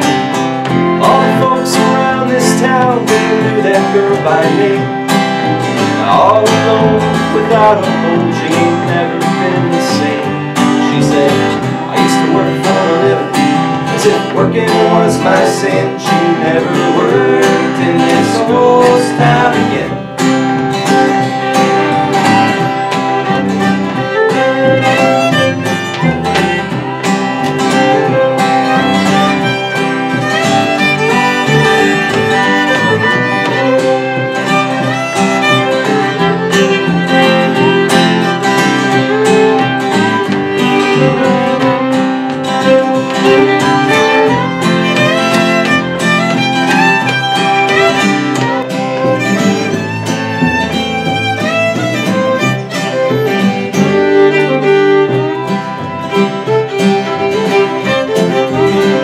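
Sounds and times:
bowed fiddle: 0.0s - 59.0s
strummed acoustic guitar: 0.0s - 59.0s
plucked upright bass: 15.8s - 34.4s.

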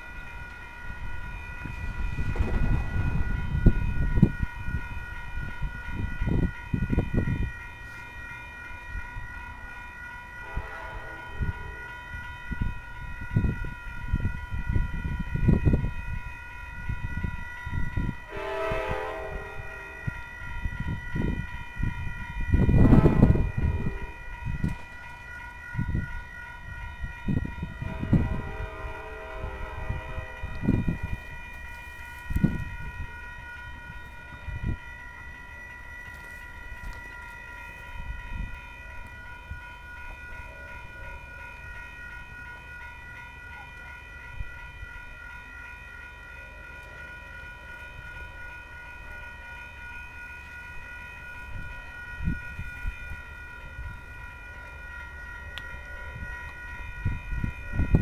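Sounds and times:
electronic crossing warning bell: 0.0s - 58.0s
gusty low rumbles: 1.0s - 7.4s, 20.6s - 24.8s.

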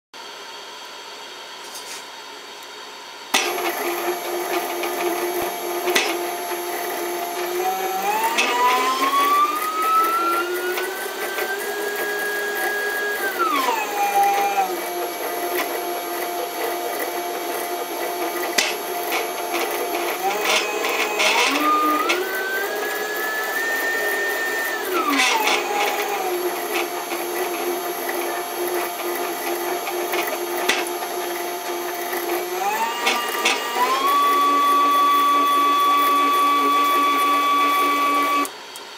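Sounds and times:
stepper motor whine: 3.3s - 38.5s
stepper motor rising whine: 3.4s - 38.5s.

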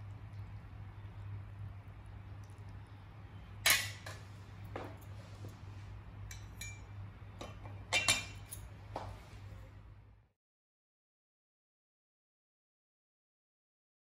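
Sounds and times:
steady low hum: 0.0s - 10.4s
metal spatula clinking on bowl: 6.3s - 8.7s.

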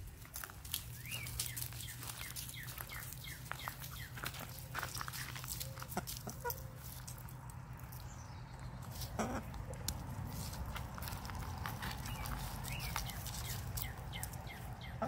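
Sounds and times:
hens giving soft calls: 1.5s - 7.4s, 8.8s - 10.6s.

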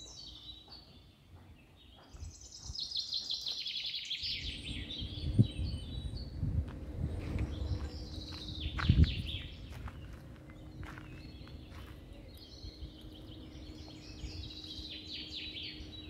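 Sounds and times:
small birds chirping: 0.0s - 16.0s
low rumble: 4.3s - 16.0s.

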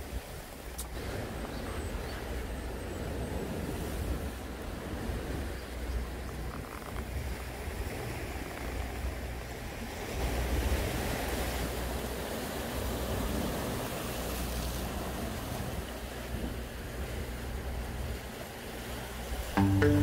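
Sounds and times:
surf washing over rocks: 9.8s - 20.0s.

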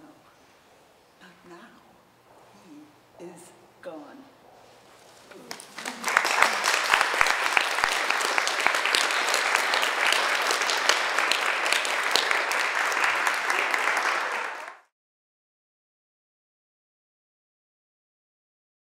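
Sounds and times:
audience applauding: 5.4s - 14.9s.

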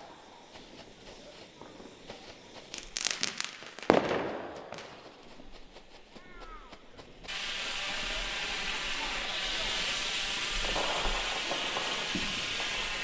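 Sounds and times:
firework crackles: 0.0s - 13.0s
steady firework hiss: 0.0s - 13.0s
firework bang echoing: 2.7s - 5.2s, 7.3s - 13.0s.

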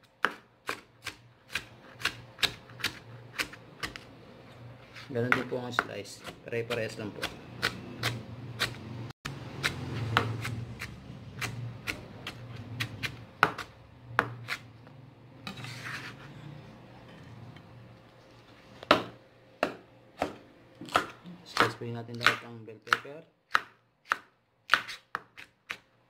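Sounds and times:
knife chopping on cutting board: 0.1s - 4.1s, 5.0s - 8.9s, 9.6s - 14.6s, 18.9s - 25.9s
knife scraping cutting board: 4.8s - 8.8s, 15.4s - 17.6s, 24.7s - 25.8s.

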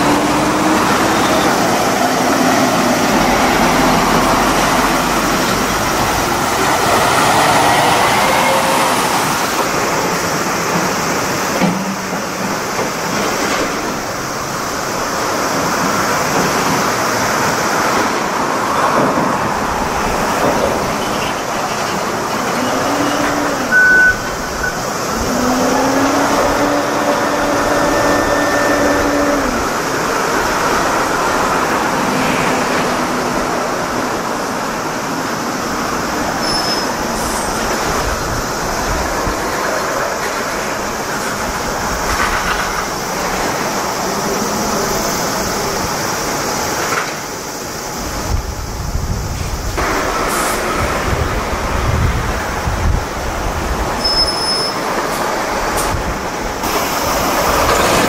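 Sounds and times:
heavy machinery engine droning: 0.0s - 36.6s
short high beep: 23.7s - 24.8s.

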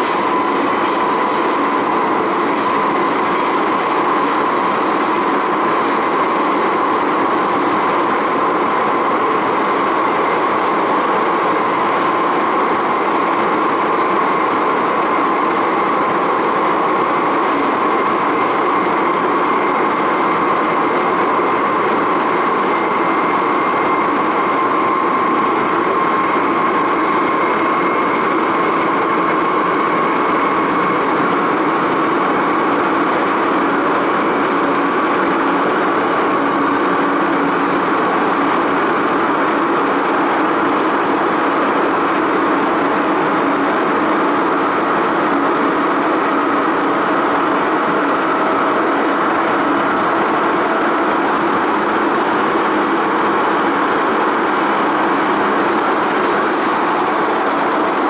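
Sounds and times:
train wheels rumbling on rail: 0.0s - 58.0s
high hiss: 56.2s - 58.0s.

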